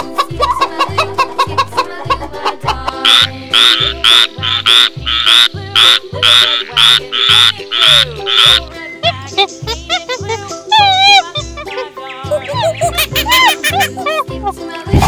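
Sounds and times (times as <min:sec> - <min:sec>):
background music with bass beat: 0:00.0 - 0:15.0
tree frog croaking: 0:02.9 - 0:08.7, 0:09.6 - 0:14.0.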